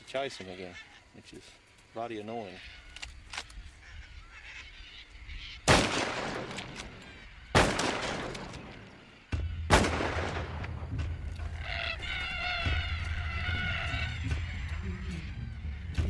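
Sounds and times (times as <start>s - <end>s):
cockatoos squawking: 0.0s - 10.0s, 11.2s - 16.0s
rifle shots with echo: 5.7s - 8.9s, 9.7s - 10.9s.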